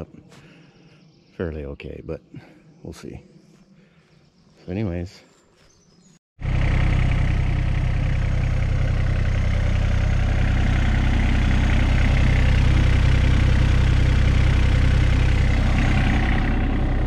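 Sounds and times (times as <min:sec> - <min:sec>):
small diesel engine running: 0:06.4 - 0:17.0.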